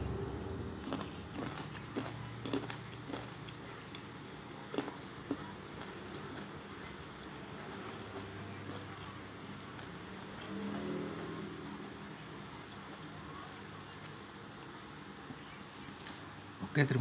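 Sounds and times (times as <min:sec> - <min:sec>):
faint low hum: 0:00.0 - 0:17.0
person chewing food: 0:00.8 - 0:11.5, 0:12.6 - 0:13.1.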